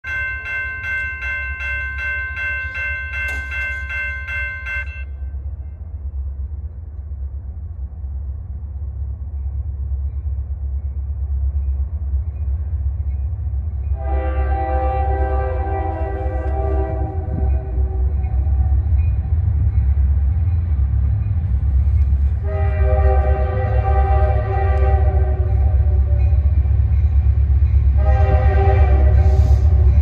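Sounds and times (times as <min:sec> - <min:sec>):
railroad crossing bell ringing: 0:00.0 - 0:05.9, 0:11.5 - 0:23.0, 0:23.6 - 0:30.0
freight train rumble: 0:00.0 - 0:30.0
locomotive air horn: 0:13.9 - 0:18.8, 0:22.4 - 0:26.2, 0:27.9 - 0:29.9.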